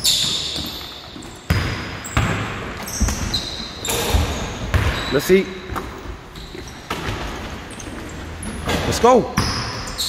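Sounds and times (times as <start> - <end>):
sneakers squeaking on wood: 0.0 - 10.0
basketball bouncing on hardwood floor: 0.1 - 5.1, 9.4 - 10.0.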